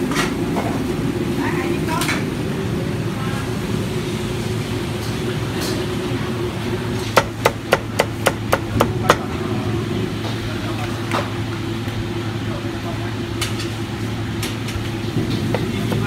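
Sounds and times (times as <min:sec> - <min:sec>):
steady low hum: 0:00.0 - 0:16.0
cleaver chopping on wooden block: 0:07.2 - 0:09.2.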